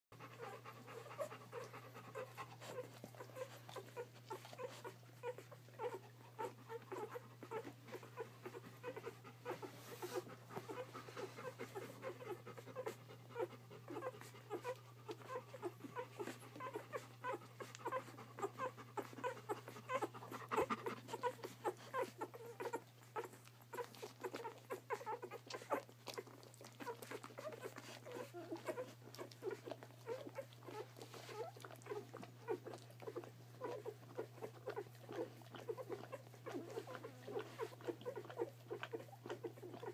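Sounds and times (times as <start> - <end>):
puppies squeaking and grunting: 0.2 - 39.9.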